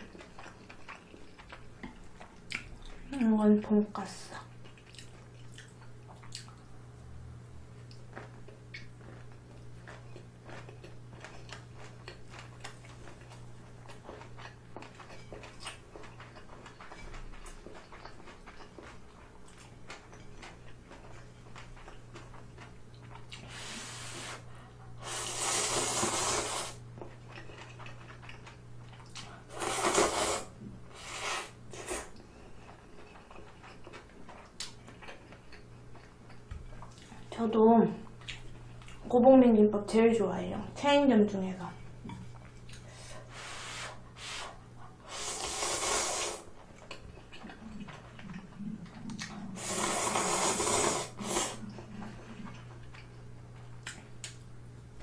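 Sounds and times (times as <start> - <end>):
low electrical hum: 0.0 - 55.0
wet chewing clicks: 4.5 - 6.6, 46.6 - 49.6
loud noodle slurps: 25.0 - 26.8, 29.5 - 32.1, 45.1 - 46.5, 49.6 - 51.7.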